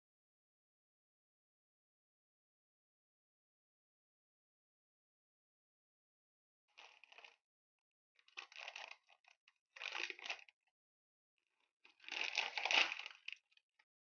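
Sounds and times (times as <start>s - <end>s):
snack packet crinkling: 8.4s - 9.0s, 9.8s - 10.4s, 12.0s - 13.4s
packet tearing open: 9.8s - 10.4s, 12.1s - 13.4s.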